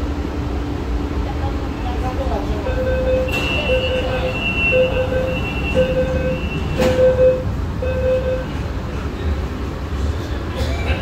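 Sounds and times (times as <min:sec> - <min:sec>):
train carriage hum: 0:00.0 - 0:11.0
door warning beeps: 0:02.6 - 0:08.6.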